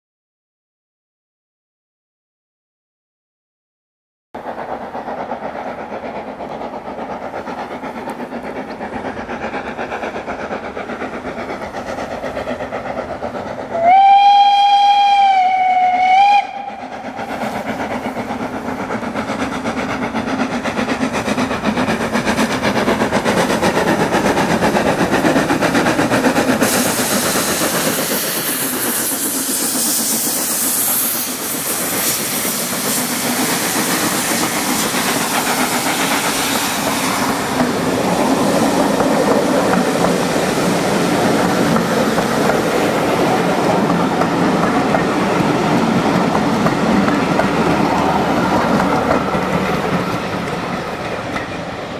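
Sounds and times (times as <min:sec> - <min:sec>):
steam exhaust hiss: 0:04.4 - 0:51.9
train rail noise: 0:04.4 - 0:51.9
steam locomotive whistle: 0:13.7 - 0:17.1.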